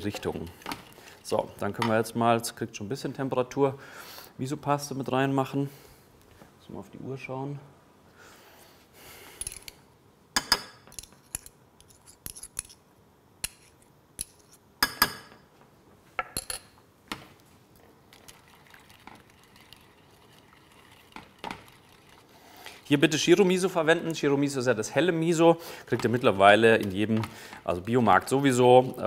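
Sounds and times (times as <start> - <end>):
stirring ticks: 18.1 - 22.9, 25.9 - 27.3.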